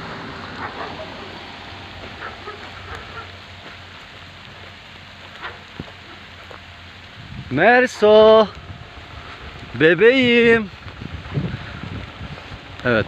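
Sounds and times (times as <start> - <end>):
faint distant calls: 0.0 - 6.9
steady rain falling: 0.0 - 13.0.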